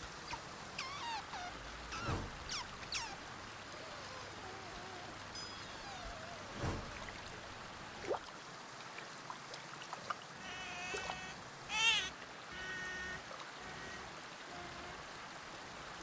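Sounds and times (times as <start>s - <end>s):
otter squealing: 0.3s - 7.2s.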